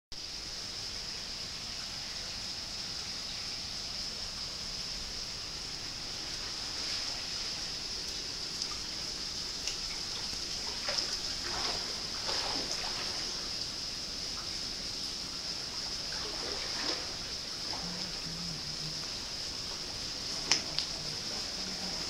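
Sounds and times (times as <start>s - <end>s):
small trickles and splashes: 0.2s - 22.0s
water running into bath: 6.1s - 22.0s.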